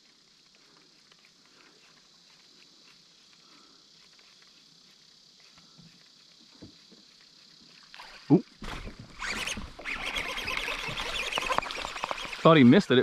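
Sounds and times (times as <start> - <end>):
fish gulping lure: 9.8 - 12.6
fish splashing on water: 10.3 - 12.6.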